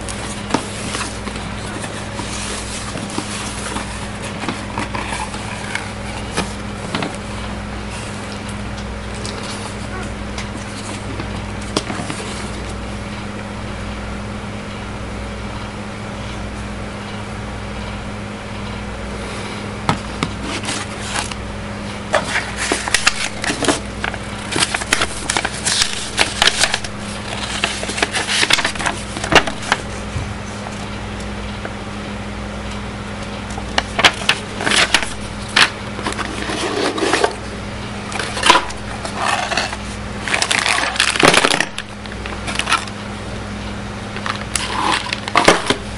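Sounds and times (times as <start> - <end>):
low electrical hum: 0.0 - 45.9
packaging rustling and crinkling: 0.1 - 8.5, 22.2 - 29.9.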